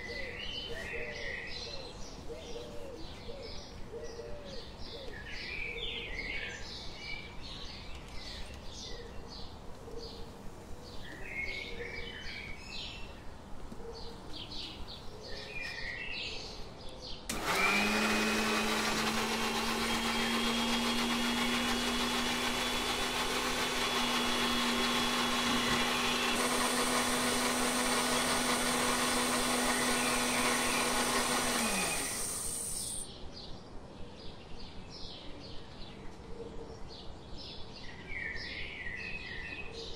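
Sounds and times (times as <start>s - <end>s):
birds chirping: 0.0s - 33.6s
electric mixer grinder whining: 17.3s - 33.1s.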